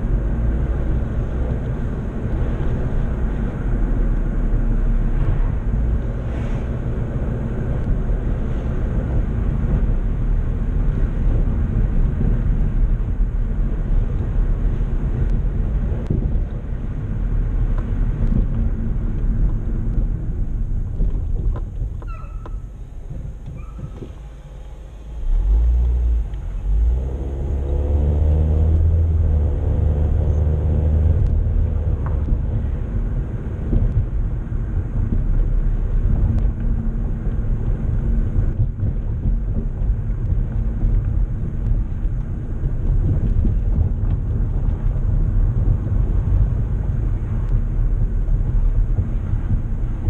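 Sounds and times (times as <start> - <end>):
tyre noise: 0.0 - 27.4
car engine revving: 23.0 - 50.0.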